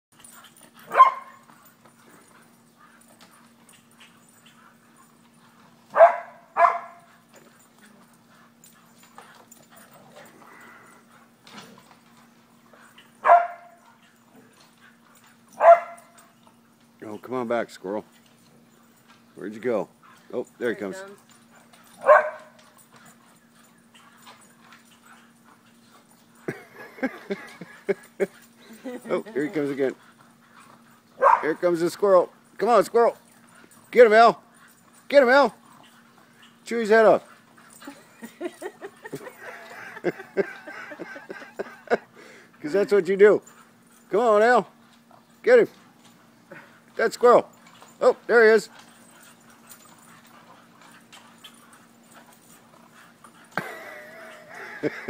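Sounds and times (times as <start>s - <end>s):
dogs barking excitedly: 0.1s - 17.0s, 18.0s - 55.0s
dogs barking: 0.2s - 11.1s, 12.7s - 16.4s, 21.2s - 31.8s
dog yipping: 0.9s - 1.5s, 5.9s - 7.1s, 13.2s - 13.8s, 15.6s - 16.2s, 22.0s - 22.6s, 31.2s - 31.5s.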